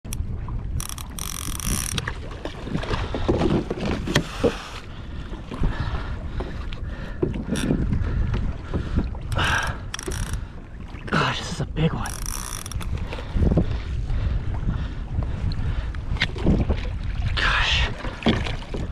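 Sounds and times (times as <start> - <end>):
water sloshing against kayak: 0.1 - 18.9
wind buffeting microphone: 0.1 - 18.9
fishing reel clicks and knocks: 0.8 - 2.1, 9.3 - 10.4, 12.0 - 13.0.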